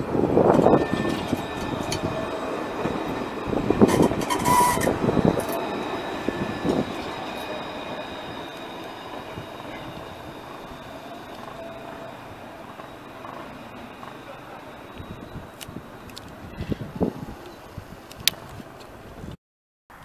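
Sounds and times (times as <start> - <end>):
thin high whine: 0.0 - 18.0
tram wheels clattering on rails: 0.0 - 19.1.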